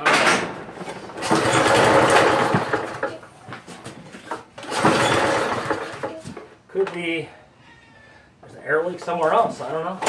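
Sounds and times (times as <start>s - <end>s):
starter rope pulled: 0.8s - 3.2s, 4.1s - 6.2s
small engine turning over: 4.6s - 6.1s.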